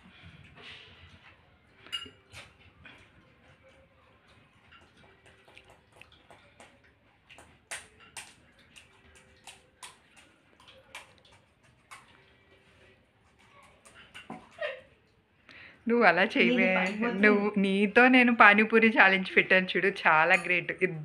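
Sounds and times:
spoon tapping ceramic bowls: 16.7s - 17.3s, 20.2s - 20.7s.

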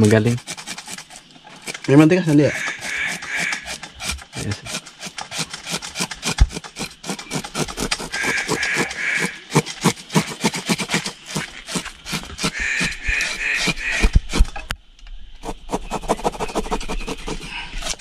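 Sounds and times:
knife scraping fish scales: 0.4s - 14.5s.

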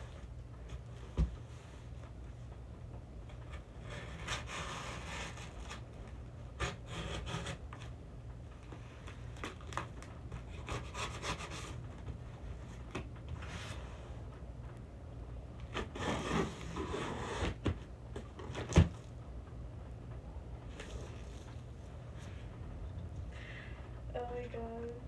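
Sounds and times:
cardboard scraping: 3.4s - 7.9s, 8.7s - 14.2s, 15.6s - 19.1s, 20.7s - 22.5s
knife cutting packing tape: 9.4s - 11.8s, 15.7s - 17.7s.

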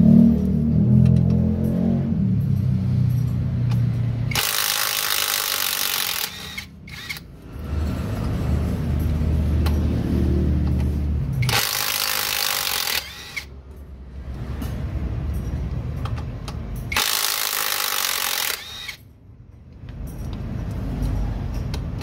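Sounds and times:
impact wrench running: 3.7s - 7.4s, 11.4s - 13.6s, 16.8s - 19.1s.

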